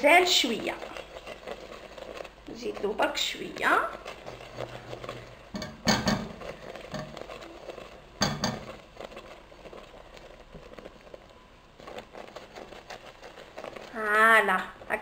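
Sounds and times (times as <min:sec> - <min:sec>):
whisk knocking against pan: 0:02.7 - 0:09.4.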